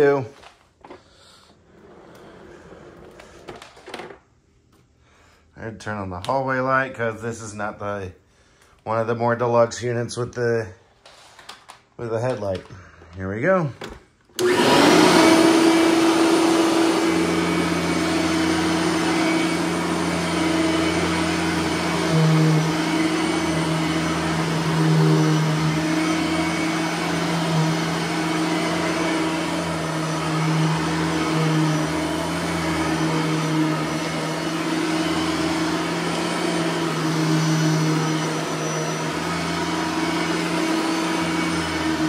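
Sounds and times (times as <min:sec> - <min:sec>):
vacuum cleaner running over rug: 0:14.4 - 0:42.0.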